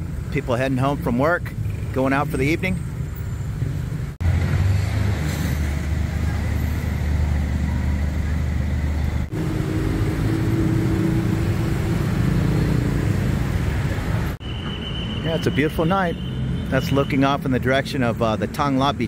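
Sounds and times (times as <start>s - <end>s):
car and motorbike engines: 0.0s - 19.0s
higher engine hum: 3.8s - 14.4s.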